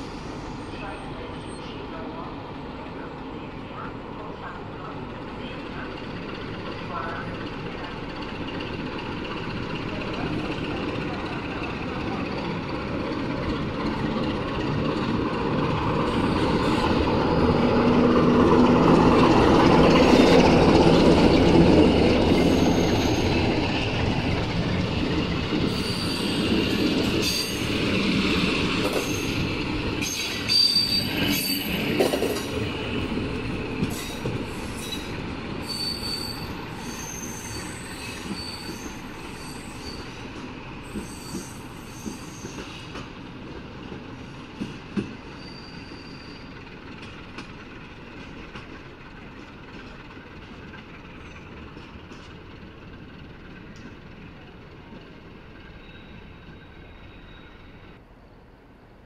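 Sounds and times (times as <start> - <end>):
diesel locomotive engine: 0.0 - 59.0
high-pitched wheel squeal: 22.3 - 23.4, 25.7 - 27.7, 34.0 - 40.2, 40.8 - 42.8, 45.3 - 46.5, 55.8 - 58.0
wheels clacking over rail joints: 26.4 - 35.6.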